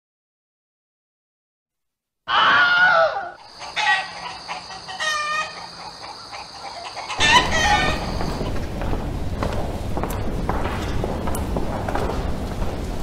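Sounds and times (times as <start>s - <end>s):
rooster crowing: 2.3s - 8.4s
footsteps: 7.2s - 13.0s.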